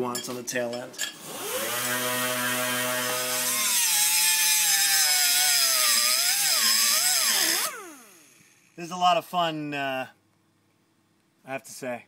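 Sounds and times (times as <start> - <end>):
air cut-off tool whine: 1.2 - 8.8.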